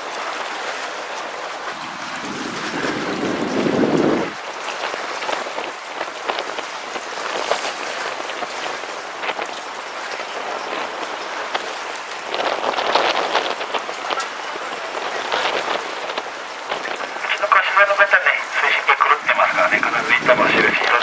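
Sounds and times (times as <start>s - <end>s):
sea water splashing against boat: 0.0s - 21.0s.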